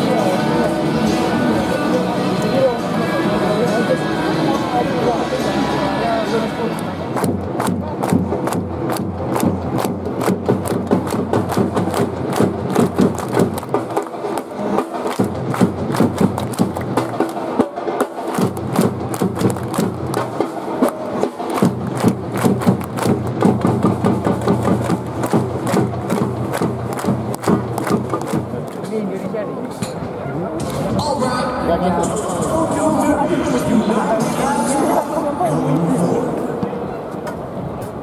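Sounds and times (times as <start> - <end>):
crowd clapping: 6.7 - 29.3
drumbeats: 7.1 - 31.3.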